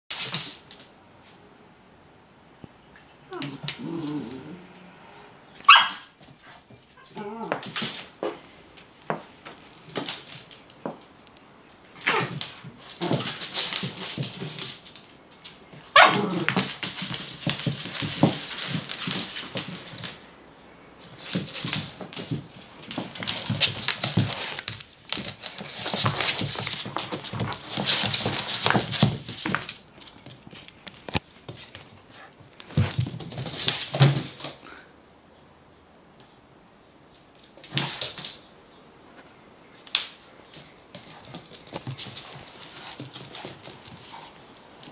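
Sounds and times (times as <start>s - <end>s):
dog barking: 5.6s - 6.0s, 16.0s - 16.3s
dog scrabbling and snuffling: 12.0s - 20.2s, 21.0s - 34.5s, 40.5s - 44.9s.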